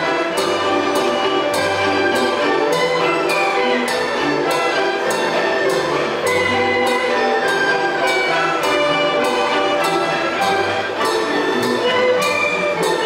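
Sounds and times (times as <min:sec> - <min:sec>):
orchestra playing lively tune: 0:00.0 - 0:13.0
strong string strokes beat: 0:00.0 - 0:13.0.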